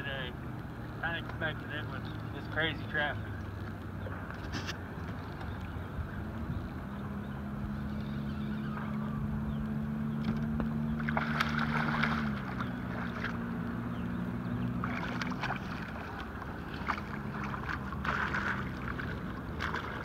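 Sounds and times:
outboard motor idling: 0.0 - 20.0
fish splashing in water: 10.2 - 13.6, 14.6 - 20.0.

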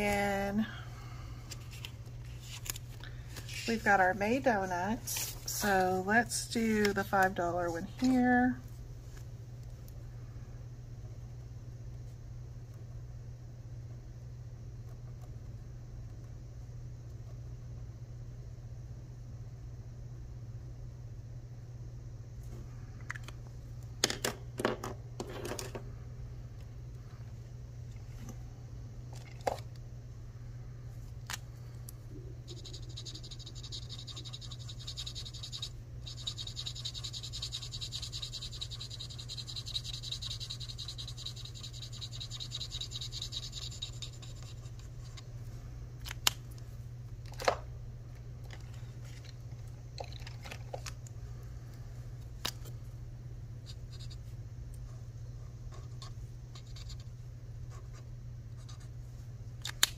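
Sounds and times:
low steady hum: 0.0 - 59.9
marker scribbling on paper: 32.5 - 44.8
markers clicking and tapping: 32.5 - 44.8.

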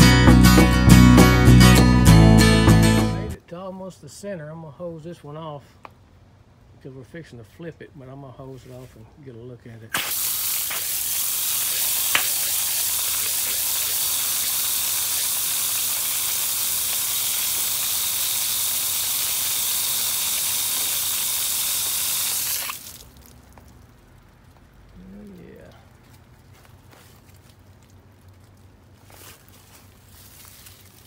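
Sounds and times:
hose spraying water on wood: 9.9 - 23.7.

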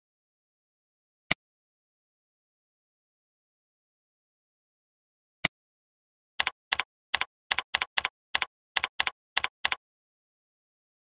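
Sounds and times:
computer keyboard typing: 6.4 - 9.8.

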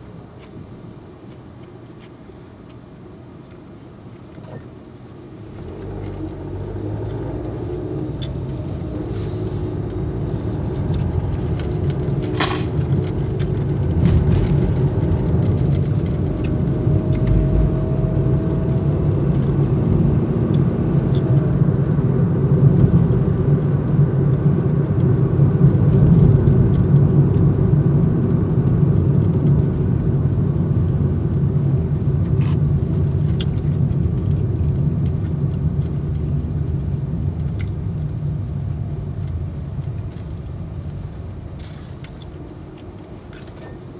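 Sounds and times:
car idling heard from inside: 0.0 - 26.0.

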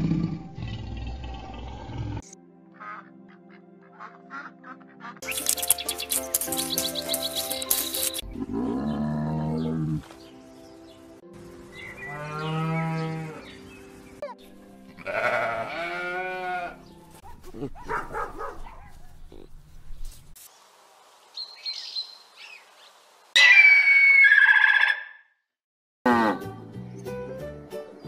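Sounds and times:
soft background music: 2.2 - 18.8
cow mooing: 8.2 - 10.0, 12.0 - 13.6, 15.0 - 16.8.

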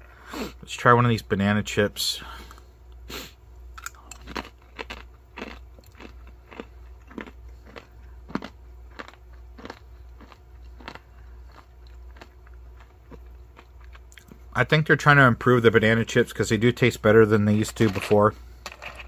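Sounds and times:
banana chip crunching: 3.8 - 14.3.

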